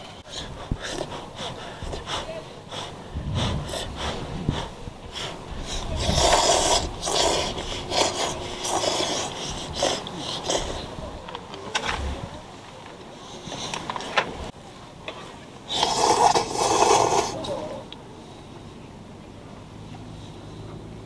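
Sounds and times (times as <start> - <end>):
people slurping noodles: 0.0 - 12.3, 15.7 - 17.9.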